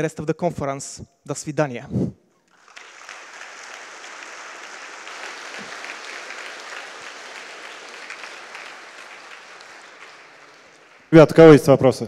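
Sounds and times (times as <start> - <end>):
audience applauding: 2.5 - 11.7.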